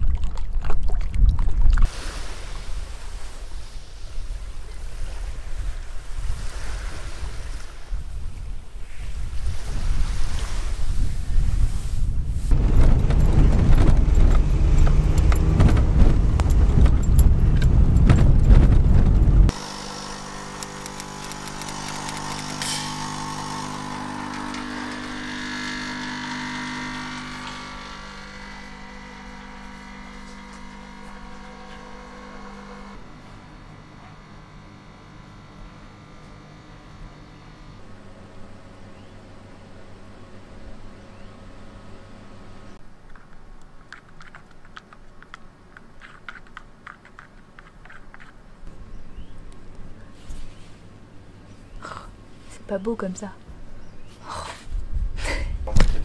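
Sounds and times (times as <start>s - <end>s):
coffee machine hiss: 19.5s - 33.6s
coffee machine pump buzzing: 19.5s - 42.8s
spoon stirring in paper cup: 43.0s - 48.5s.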